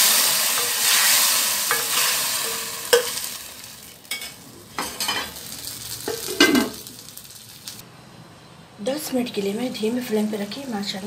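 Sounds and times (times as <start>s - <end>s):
hot oil sizzling: 0.0s - 7.8s.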